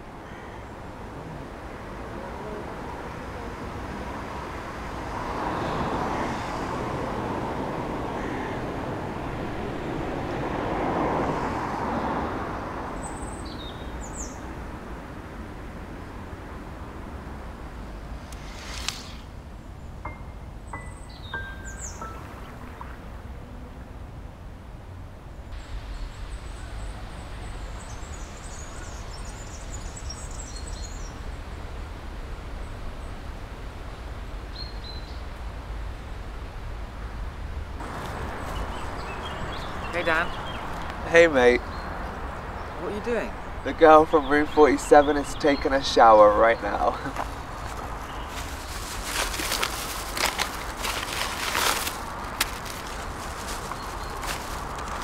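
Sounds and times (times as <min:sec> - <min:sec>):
road traffic rumble: 0:00.0 - 0:55.0
small birds chirping: 0:13.0 - 0:14.5, 0:17.7 - 0:23.1, 0:25.6 - 0:31.4, 0:37.8 - 0:55.0
bird chirps: 0:18.5 - 0:23.1.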